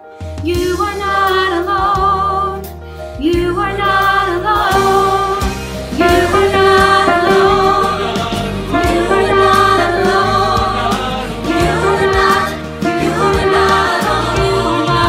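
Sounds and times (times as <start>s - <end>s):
musical accompaniment: 0.0s - 15.0s
woman singing with vibrato: 3.2s - 10.9s.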